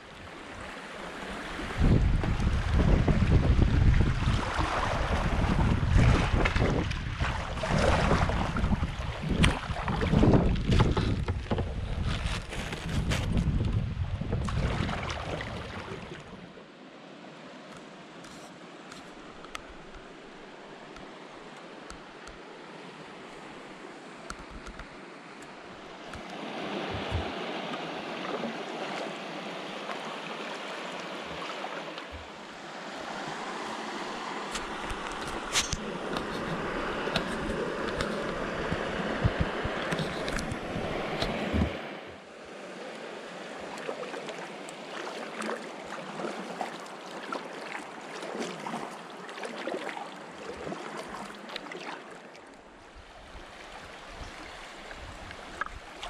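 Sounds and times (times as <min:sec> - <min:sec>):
river water rippling and splashing: 0:00.0 - 0:56.0
wind buffeting microphone: 0:01.6 - 0:15.7, 0:26.8 - 0:27.4, 0:34.6 - 0:42.2.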